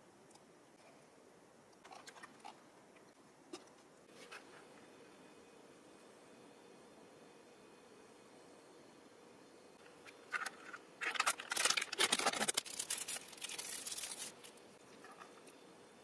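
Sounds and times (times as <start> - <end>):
paper wrapper tearing and rustling: 10.4 - 14.6.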